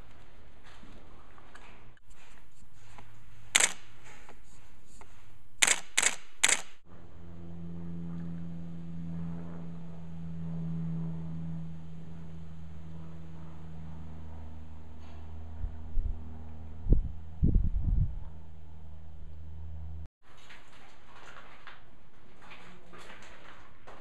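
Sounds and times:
camera shutter clicks: 0:03.6 - 0:03.9, 0:05.6 - 0:06.8
low steady hum: 0:06.9 - 0:20.1.

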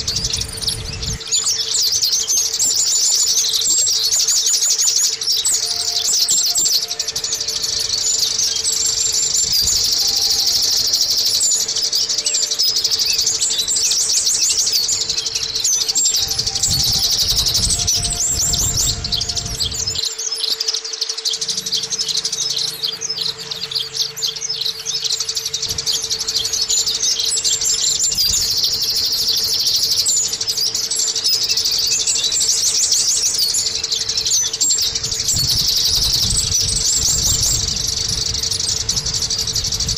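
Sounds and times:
bird twittering song: 0:00.0 - 0:39.9
faint steady hum: 0:00.0 - 0:39.9.

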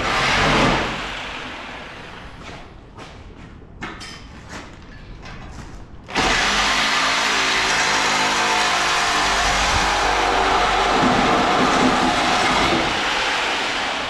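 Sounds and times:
power tool running: 0:06.1 - 0:14.0.

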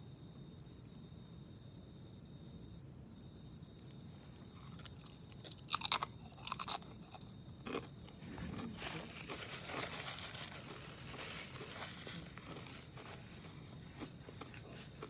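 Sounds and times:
chip crunching: 0:04.5 - 0:15.0.

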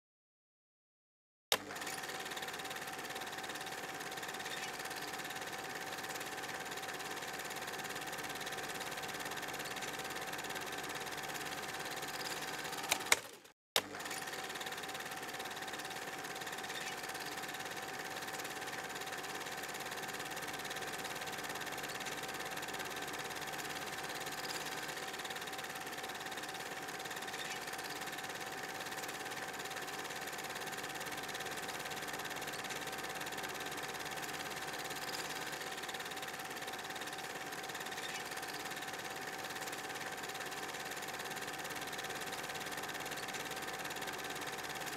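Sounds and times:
film projector whirring: 0:01.5 - 0:44.9
projector click: 0:12.7 - 0:13.4.

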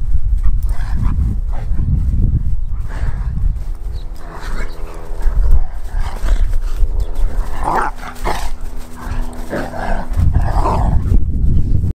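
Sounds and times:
low rumble: 0:00.0 - 0:11.9
dogs growling and barking: 0:02.8 - 0:11.2.

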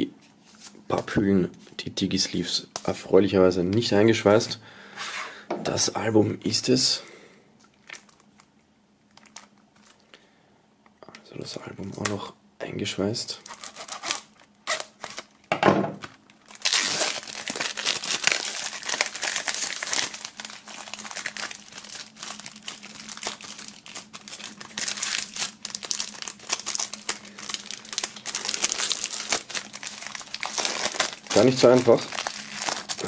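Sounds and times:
plastic wrap crinkling: 0:07.8 - 0:10.0, 0:13.4 - 0:33.0.

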